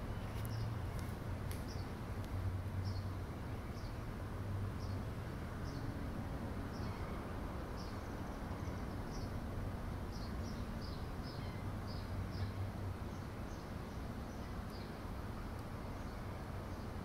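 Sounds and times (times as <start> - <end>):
small birds chirping: 0.0 - 2.0, 2.8 - 4.1, 10.1 - 17.0.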